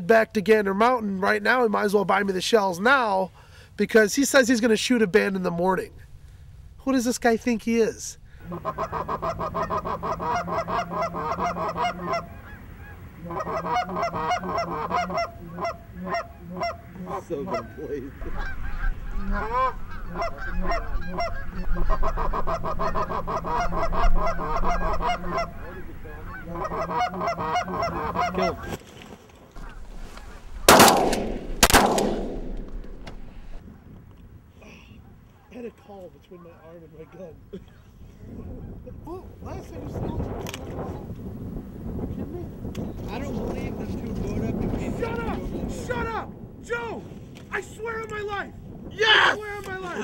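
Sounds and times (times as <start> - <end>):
goose honking and clucking: 8.4 - 28.8, 29.6 - 30.7
shotgun shots: 30.6 - 33.3.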